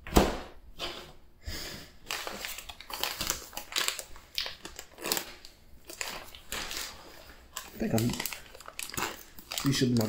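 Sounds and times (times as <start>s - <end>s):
plastic pouch crinkling and rustling: 2.0s - 10.0s.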